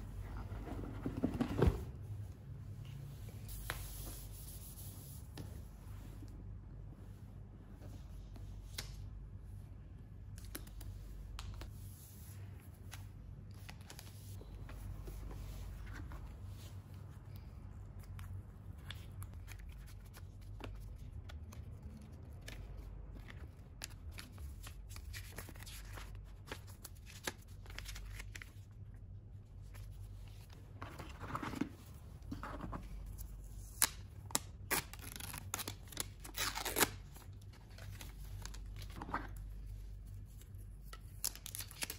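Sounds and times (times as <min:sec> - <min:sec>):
cardboard and paper rustling: 0:30.2 - 0:33.2.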